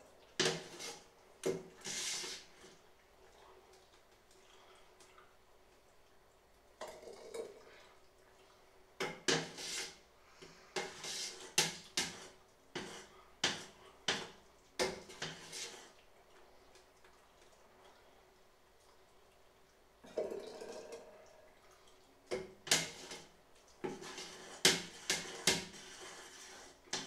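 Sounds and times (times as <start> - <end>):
metal ladle scraping steel pot: 0.4 - 1.0, 9.3 - 10.0, 10.8 - 14.2, 22.6 - 23.3, 23.9 - 27.0.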